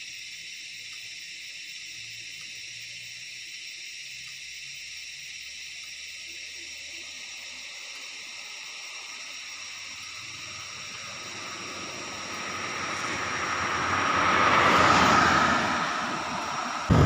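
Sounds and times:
car passing by: 9.9s - 17.0s.

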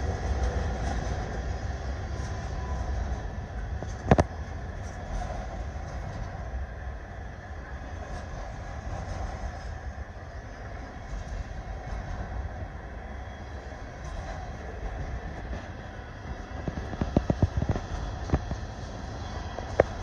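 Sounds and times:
train wheels rumbling on rails: 0.0s - 20.0s.

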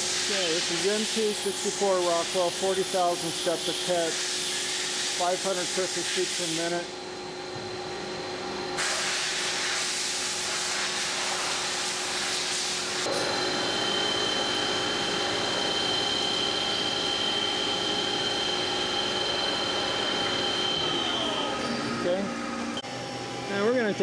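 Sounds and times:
coolant spray hissing: 0.0s - 6.8s
lathe cutting steel: 13.0s - 22.8s
high-pitched whine: 13.0s - 22.9s.

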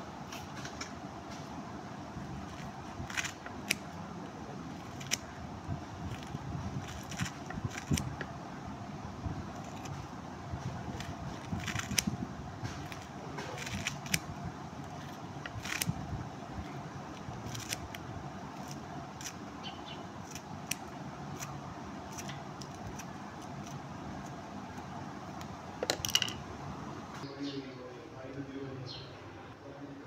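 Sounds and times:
steady background hum: 0.0s - 30.0s
scissors snipping leaves: 2.4s - 4.0s, 4.7s - 5.4s, 6.0s - 8.3s, 9.4s - 16.0s, 16.7s - 19.4s, 20.2s - 25.5s.

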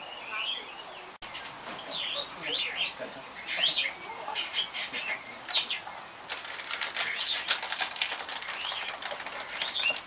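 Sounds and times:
animals rustling and clicking: 3.6s - 10.0s.

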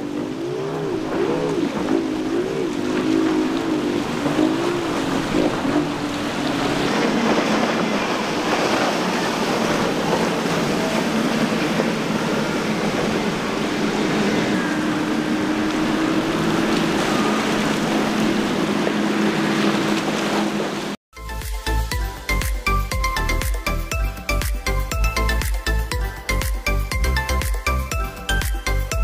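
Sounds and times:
motorboat engines droning: 0.0s - 29.0s
rushing water: 0.0s - 29.0s
wind: 0.0s - 29.0s.

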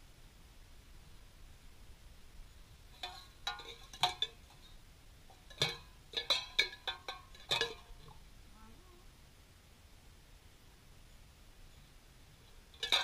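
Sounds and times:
tin cans clinking together: 3.0s - 4.7s, 5.4s - 8.2s, 12.8s - 13.0s.

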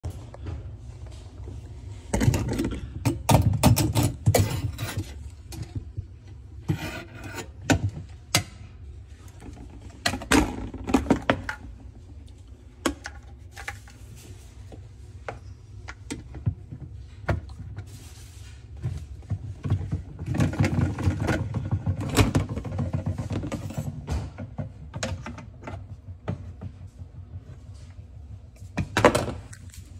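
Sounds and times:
low steady hum: 0.0s - 29.9s.

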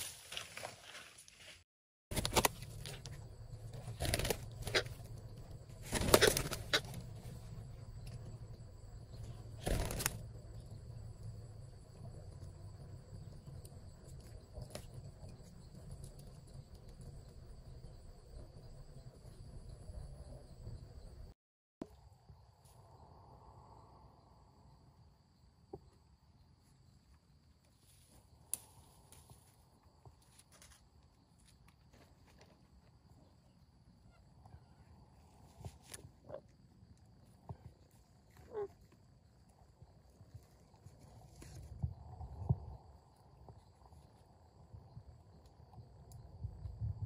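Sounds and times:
wings flapping: 2.1s - 7.4s, 9.5s - 10.2s
insect drone: 2.4s - 47.0s.

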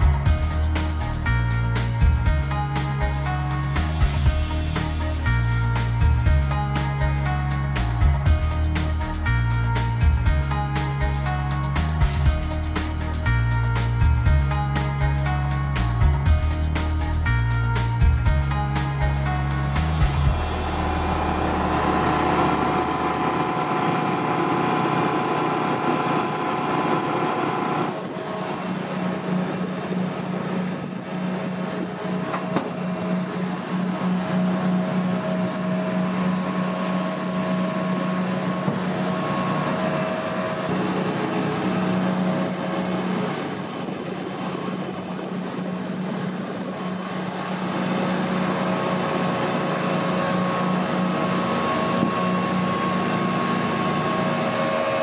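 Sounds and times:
low machinery hum: 19.3s - 55.0s
high machinery whines: 19.5s - 55.0s.

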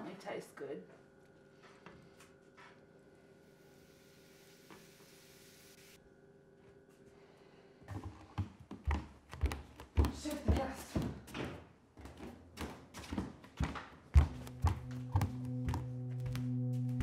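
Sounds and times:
footsteps on wooden floor: 7.9s - 17.0s.

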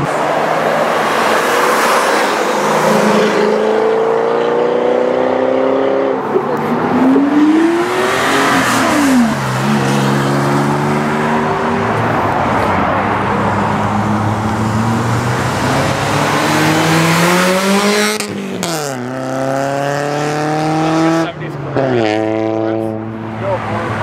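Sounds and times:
car engines passing and accelerating: 0.0s - 24.0s.

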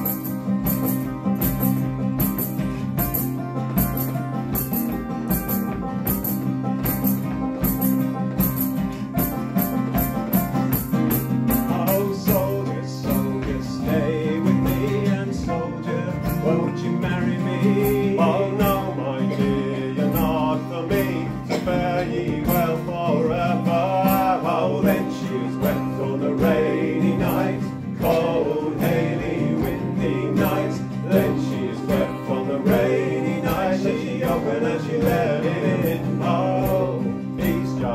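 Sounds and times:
acoustic guitars strummed: 0.0s - 37.9s
banjo: 0.0s - 37.9s
man singing: 11.5s - 37.9s.

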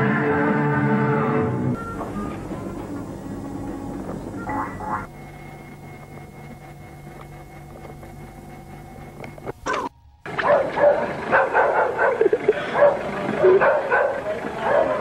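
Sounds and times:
low hum: 0.0s - 14.4s
dog barking rapidly: 9.7s - 15.0s.

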